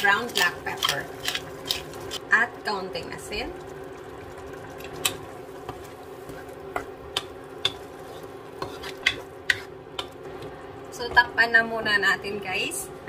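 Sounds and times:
sauce sizzling: 0.0 - 11.1
spatula knocking and scraping pan: 5.0 - 10.2.

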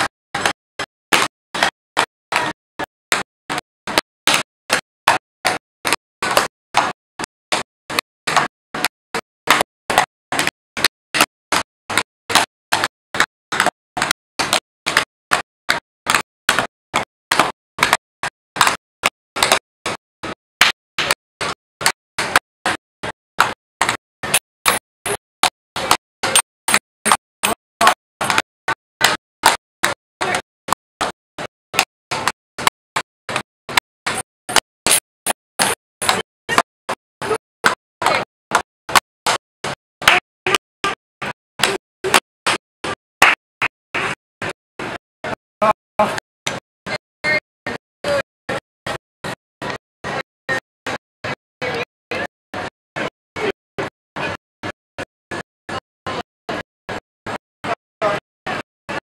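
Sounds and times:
tap shoes clicking on board: 7.5 - 8.9, 9.5 - 18.0, 25.8 - 30.4.

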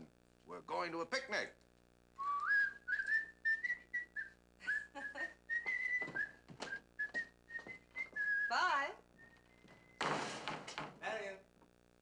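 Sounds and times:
person whistling a tune: 2.2 - 10.0.

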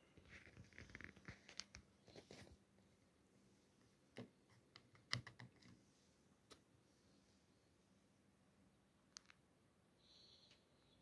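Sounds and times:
faint plastic clicks and taps: 3.8 - 5.8, 9.1 - 9.4.

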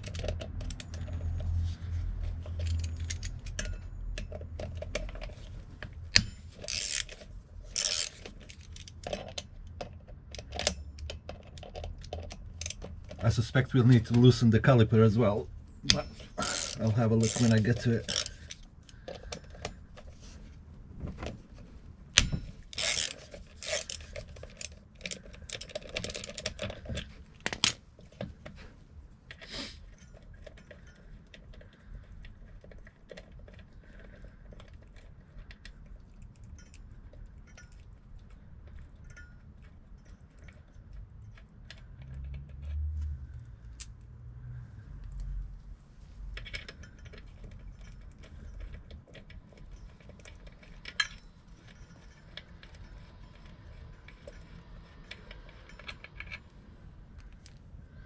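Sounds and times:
metal hand tools clinking: 15.9 - 18.6.

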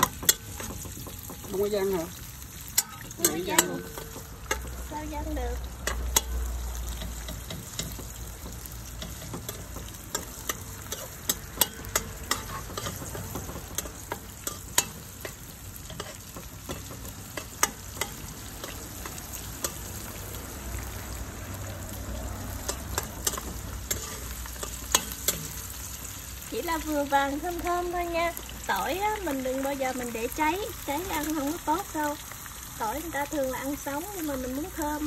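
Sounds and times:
metal spoon tapping and scraping pan: 0.0 - 20.2, 22.2 - 26.1
garlic sizzling in hot oil: 0.0 - 35.0.

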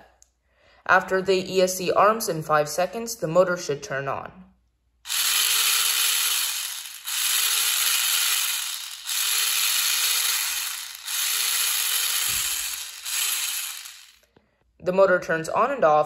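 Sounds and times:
whirring gear rattle: 5.1 - 14.3.

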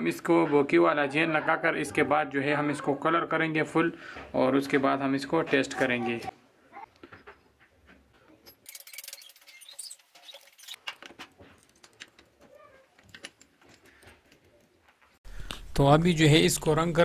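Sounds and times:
small metal clicks and scrapes: 8.3 - 15.2.

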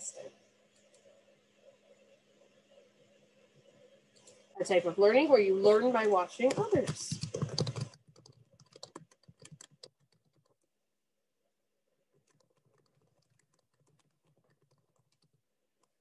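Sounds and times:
typing on computer keyboard: 6.5 - 10.7, 12.2 - 16.0.

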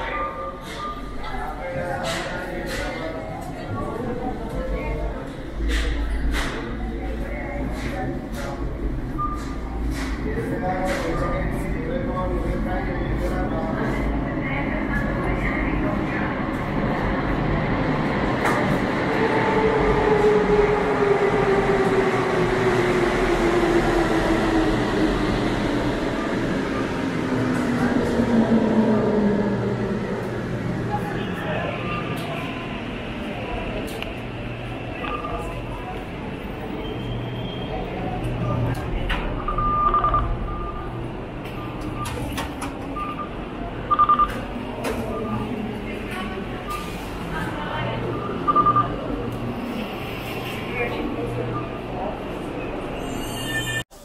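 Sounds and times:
train rumble: 0.0 - 54.0
turnstile clacks: 41.4 - 43.2.

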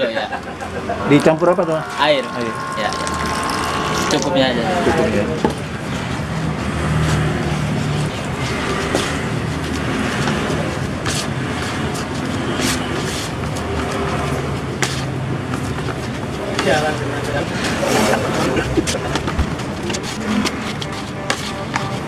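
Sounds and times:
steady low rumble: 0.3 - 6.7.

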